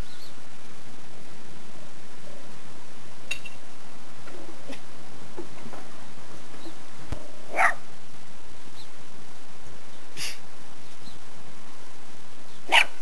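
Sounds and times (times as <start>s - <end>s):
small dog barking sharply: 7.5s - 7.8s, 12.7s - 13.0s.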